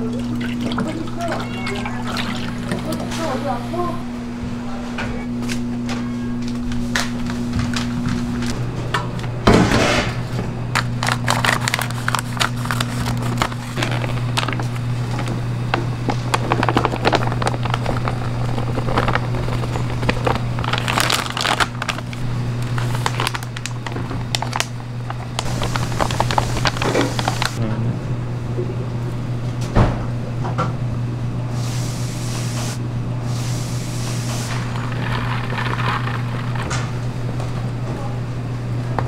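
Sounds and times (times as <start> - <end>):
low electrical hum: 0.0 - 39.0
cooking clicks and crackles: 10.7 - 27.6, 34.5 - 37.5.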